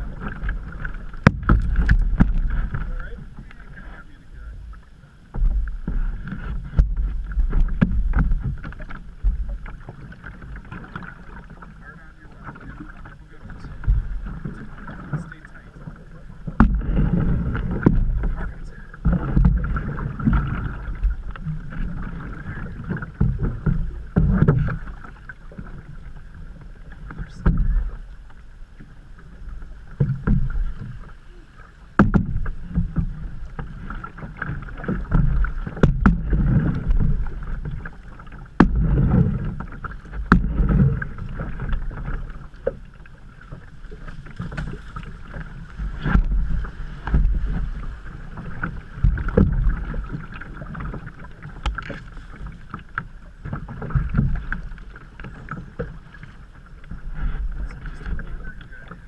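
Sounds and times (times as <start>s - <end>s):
water sloshing against canoe hull: 0.0s - 59.0s
sharp knocks: 1.2s - 2.5s, 32.0s - 32.5s, 38.6s - 39.3s.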